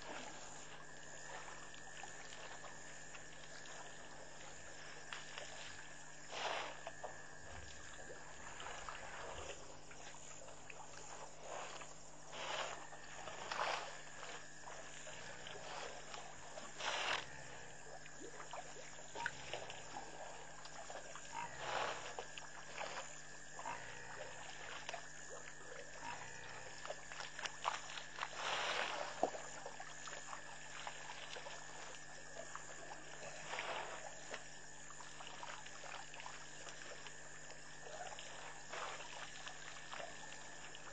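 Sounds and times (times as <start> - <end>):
frogs croaking: 0.0 - 40.9
insects chirping: 0.0 - 40.9.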